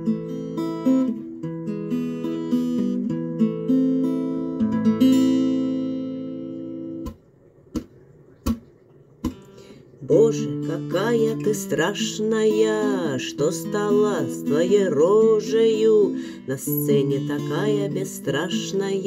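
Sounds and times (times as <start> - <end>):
acoustic guitar strumming chords: 0.0 - 7.2, 9.2 - 19.0
sharp tap: 7.0 - 9.5.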